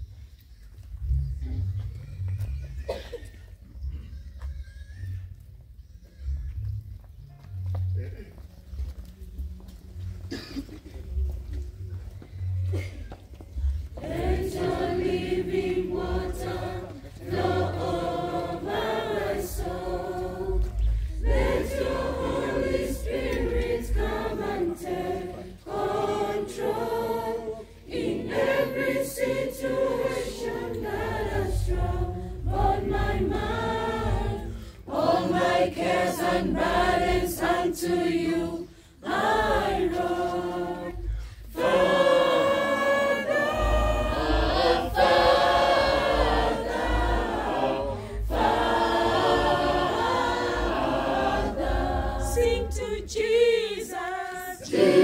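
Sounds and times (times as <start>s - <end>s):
choir singing a hymn: 13.6s - 55.0s.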